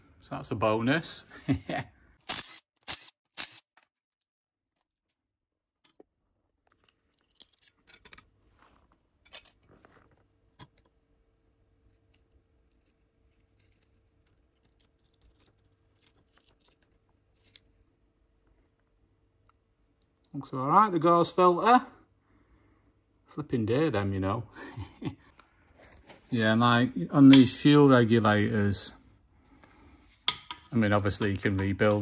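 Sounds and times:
cordless driver bursts: 0:02.3 - 0:03.6.

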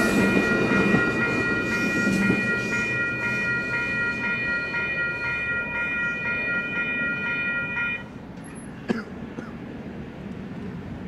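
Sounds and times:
crossing bells ringing: 0:00.0 - 0:08.7.

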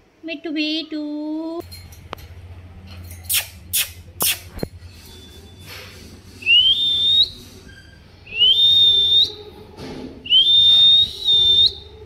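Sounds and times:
parakeet whistling: 0:06.4 - 0:09.5, 0:10.2 - 0:12.0.

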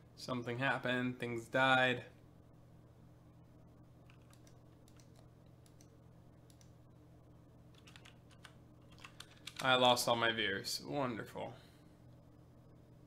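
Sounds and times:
low electrical hum: 0:00.0 - 0:13.0
faint keyboard typing: 0:04.0 - 0:06.8, 0:07.7 - 0:09.8.

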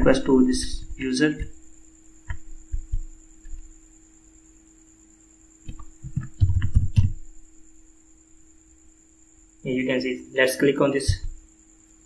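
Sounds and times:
low electrical hum: 0:00.0 - 0:12.0
keyboard typing: 0:05.7 - 0:07.2.

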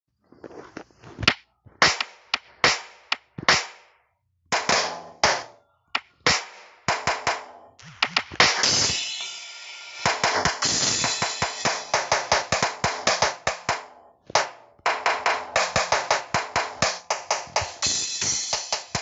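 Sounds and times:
sampled drum hits: 0:06.2 - 0:13.8
cymbal ringing: 0:08.7 - 0:12.4.

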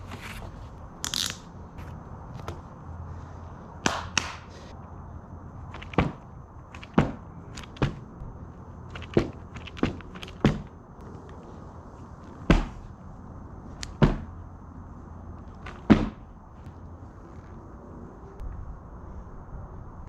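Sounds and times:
board smacking onto mat: 0:15.9 - 0:16.2.

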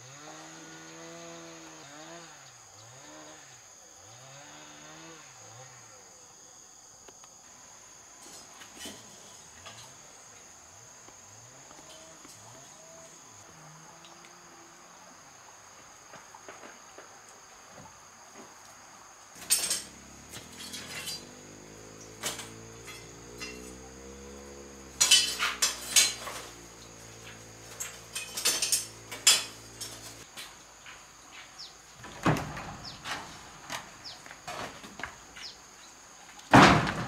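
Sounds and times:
knocks and metallic clinks of tools: 0:19.4 - 0:21.4, 0:22.0 - 0:24.1, 0:24.9 - 0:31.0.

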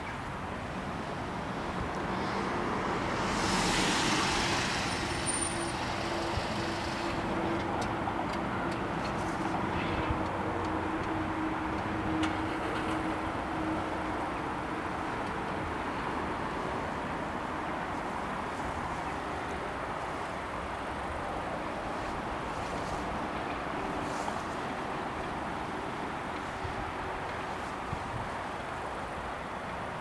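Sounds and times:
car driving up and stopping: 0:02.4 - 0:07.2.

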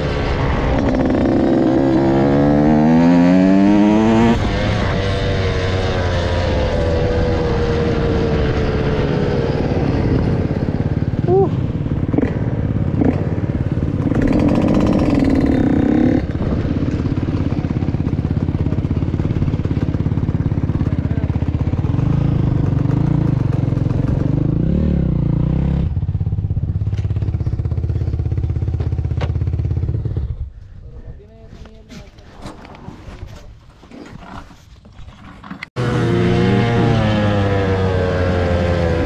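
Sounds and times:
dirt bike engine running: 0:00.0 - 0:30.6.

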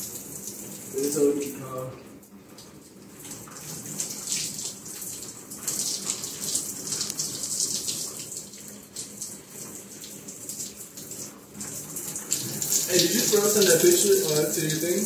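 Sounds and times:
shower spraying water: 0:00.0 - 0:15.0.

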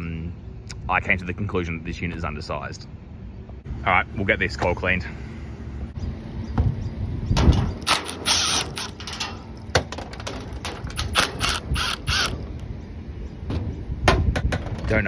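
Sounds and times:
cordless driver running: 0:07.8 - 0:09.2, 0:10.8 - 0:12.4.

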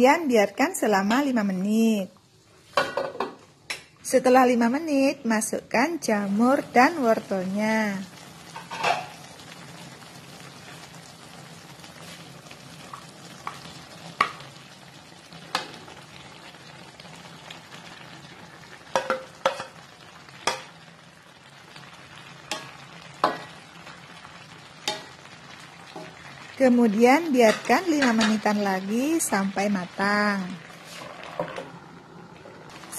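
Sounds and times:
broth simmering with hiss: 0:04.5 - 0:32.9
spatula knocking and scraping wok: 0:08.5 - 0:09.1, 0:18.9 - 0:19.8, 0:20.4 - 0:20.8, 0:22.5 - 0:23.6, 0:24.8 - 0:25.2, 0:27.4 - 0:28.4.

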